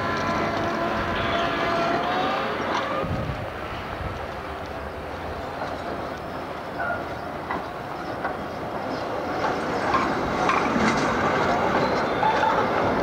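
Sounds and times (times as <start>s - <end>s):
tram rumbling past: 0.0s - 13.0s
wheels clicking on rails: 0.0s - 13.0s.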